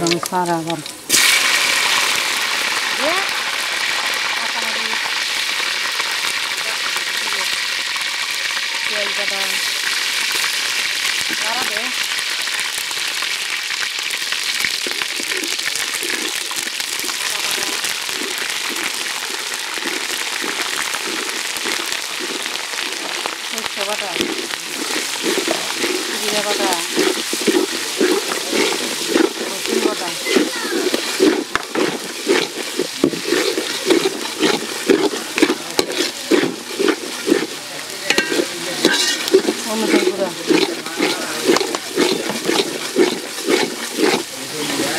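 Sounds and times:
rice sizzling in hot oil: 0:00.0 - 0:44.9
metal spatula stirring: 0:14.6 - 0:44.9.

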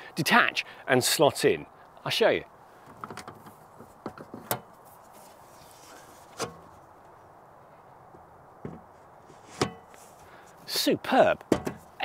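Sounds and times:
metal box lid clicks and knocks: 0:11.4 - 0:11.9.

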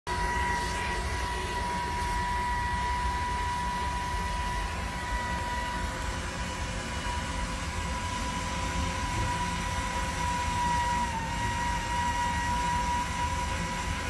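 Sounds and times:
torch flame hissing: 0:00.1 - 0:14.0
high-pitched whistle: 0:08.0 - 0:14.0.

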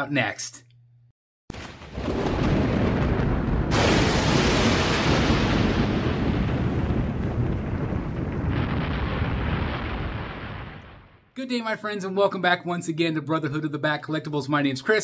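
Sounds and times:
thunder rumble and crack: 0:01.5 - 0:11.3.

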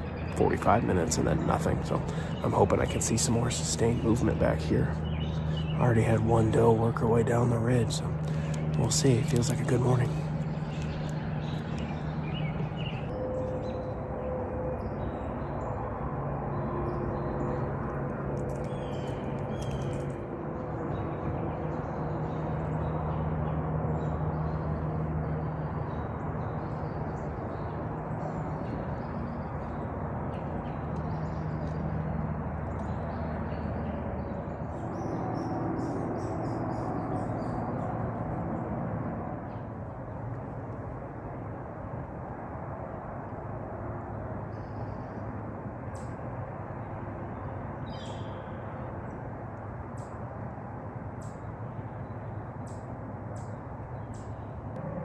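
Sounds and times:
small birds chirping: 0:00.0 - 0:13.2, 0:18.5 - 0:38.0, 0:47.4 - 0:48.7
distant engines droning: 0:00.0 - 0:55.0.

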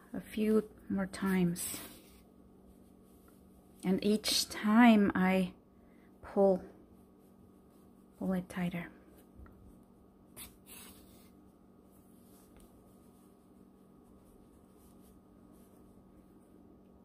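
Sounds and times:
yarn swishing through fabric: 0:00.0 - 0:04.7, 0:06.8 - 0:16.5
faint steady hum: 0:00.0 - 0:17.0.

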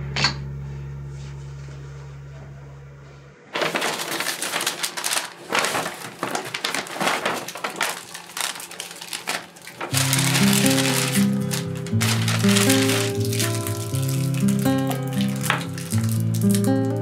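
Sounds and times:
paper and plastic packaging rustling: 0:03.5 - 0:17.0.

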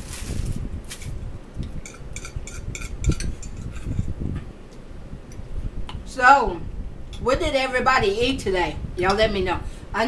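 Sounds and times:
forks clinking on plates: 0:01.9 - 0:03.7.

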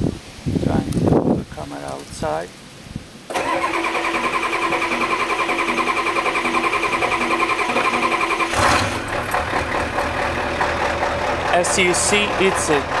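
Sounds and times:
diesel engine running: 0:03.3 - 0:13.0
starter cranking engine: 0:03.3 - 0:13.0.

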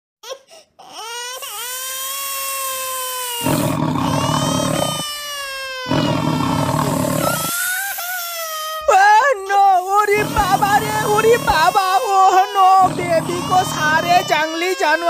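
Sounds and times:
baby crying: 0:00.2 - 0:15.0
big cat roaring: 0:03.4 - 0:05.1, 0:05.9 - 0:07.6, 0:10.1 - 0:11.8, 0:12.7 - 0:14.4.

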